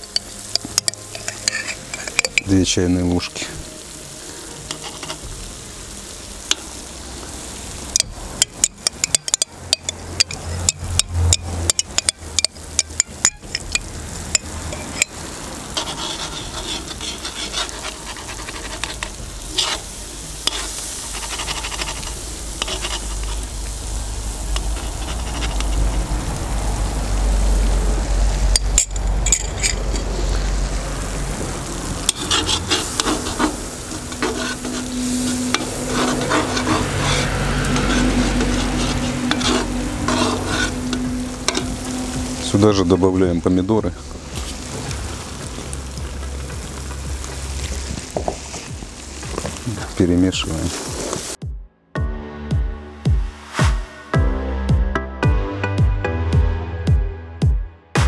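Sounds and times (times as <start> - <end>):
metal spoon scraping a pot: 0.0 - 2.5, 4.7 - 5.3, 8.0 - 23.5, 24.6 - 26.0, 28.6 - 30.1, 32.0 - 42.1
food sizzling in hot oil: 0.0 - 51.4
low rumble: 21.8 - 49.9.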